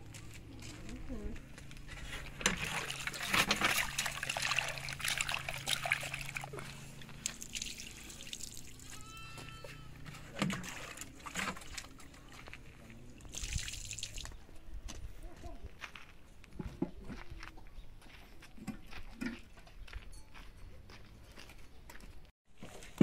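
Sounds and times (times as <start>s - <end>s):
water splashing on ground: 2.4s - 9.0s, 10.3s - 14.4s
water pouring into metal pot: 2.6s - 6.4s.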